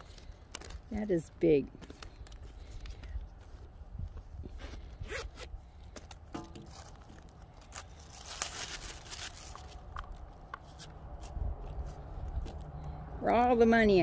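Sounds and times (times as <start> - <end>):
zipper being pulled open: 4.4 - 5.5.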